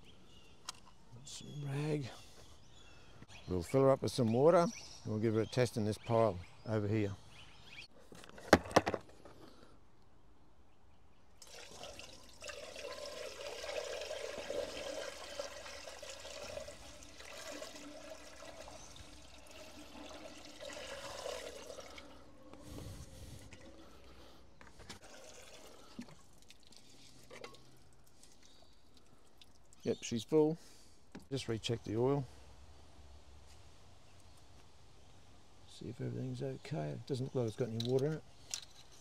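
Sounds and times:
water pouring through metal funnel: 0:11.4 - 0:24.0, 0:24.9 - 0:29.8.

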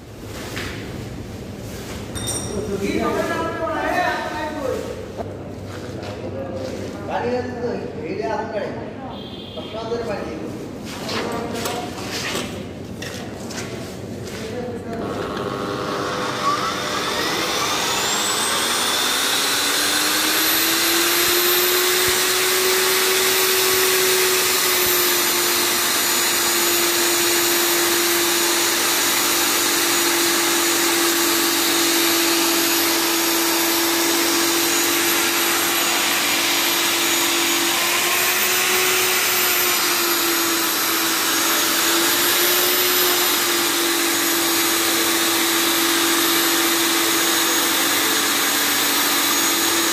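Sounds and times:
core drill whining into concrete: 0:15.0 - 0:49.9.

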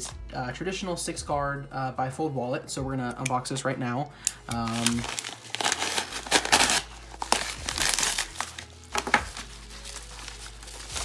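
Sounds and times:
paper mailer crinkling: 0:04.6 - 0:11.0.

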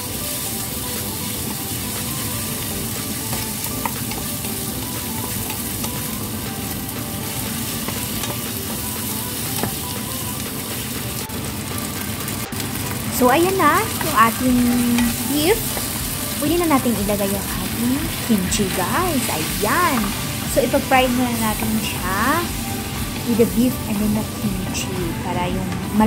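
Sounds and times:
meat and onion sizzling in oil: 0:00.0 - 0:26.0
utensil ticking in pan: 0:00.3 - 0:26.0.

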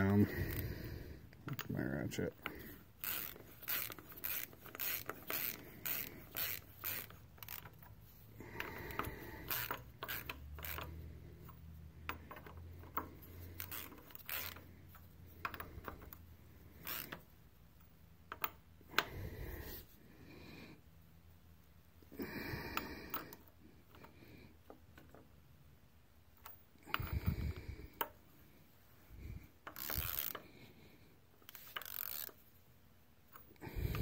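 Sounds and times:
ratchet wrench clicking: 0:02.4 - 0:17.3, 0:29.6 - 0:30.5, 0:31.4 - 0:32.4, 0:33.3 - 0:34.0.

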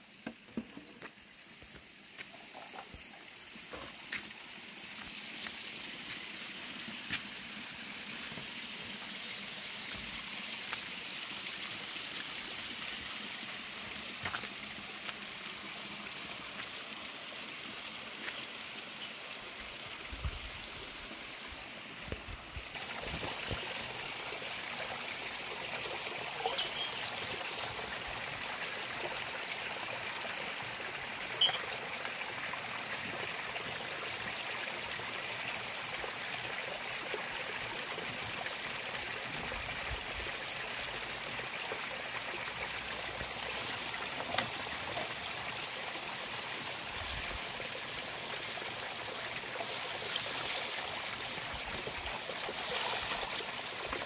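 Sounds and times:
stream trickling over rocks: 0:00.0 - 0:54.0
glasses and dishes clinking: 0:26.4 - 0:27.1, 0:31.4 - 0:31.8.

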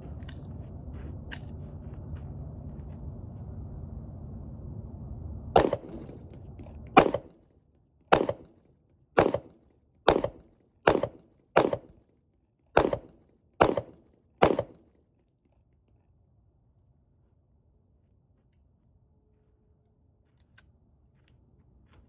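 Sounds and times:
pistol shots: 0:05.6 - 0:06.3, 0:07.0 - 0:07.4, 0:08.1 - 0:08.6, 0:09.2 - 0:11.9, 0:12.8 - 0:14.8.

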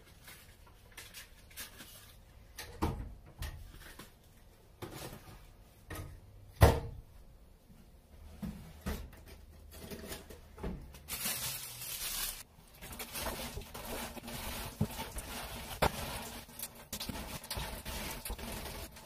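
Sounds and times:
utensils and metal bowl clattering: 0:09.0 - 0:19.0.

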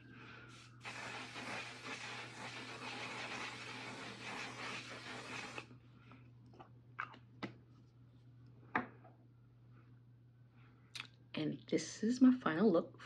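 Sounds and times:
spray misting hiss: 0:00.5 - 0:05.6.

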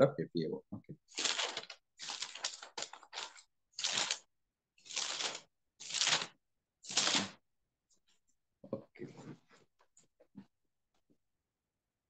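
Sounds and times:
paper rustling and crinkling: 0:01.1 - 0:04.3, 0:04.9 - 0:06.3, 0:06.9 - 0:07.4.

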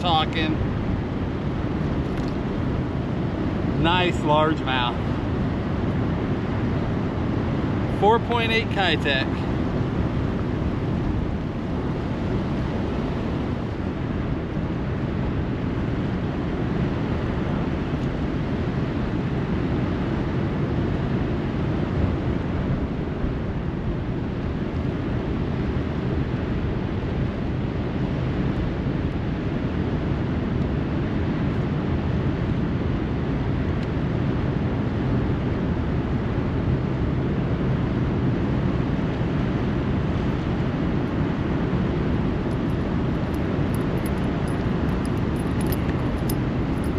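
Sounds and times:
turbulent river rushing: 0:03.8 - 0:05.2.

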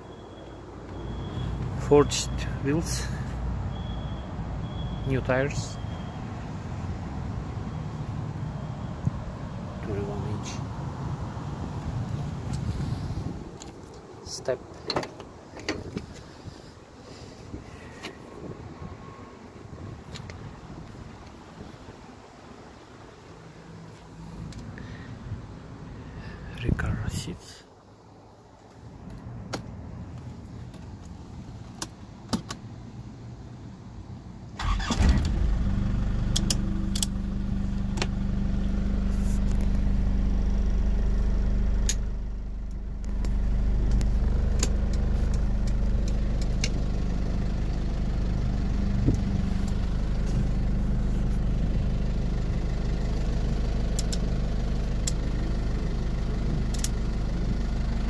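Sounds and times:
diesel engine starting and idling: 0:34.6 - 0:58.0.

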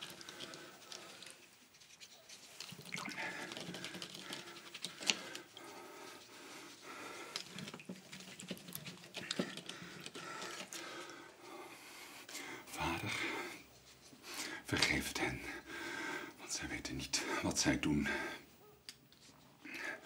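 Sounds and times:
small clicks and rustles: 0:00.0 - 0:11.3
man panting heavily: 0:15.5 - 0:16.4.

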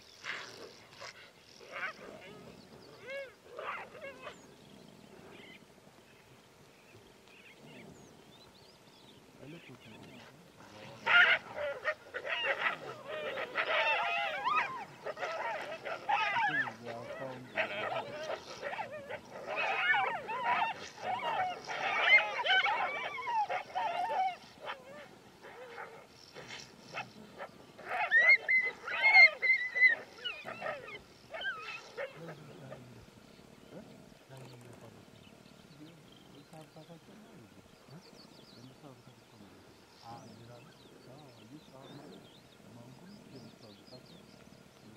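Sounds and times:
wolves calling in chorus: 0:00.0 - 0:04.5, 0:09.5 - 0:34.2.

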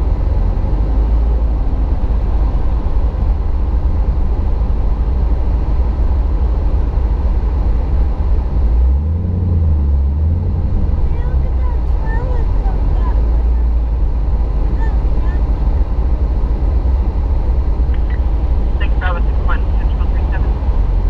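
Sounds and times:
car cabin road rumble: 0:00.0 - 0:21.0.

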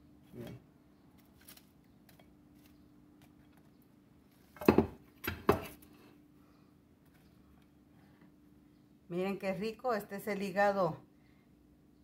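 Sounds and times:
clattering knocks on counter: 0:04.6 - 0:05.7.

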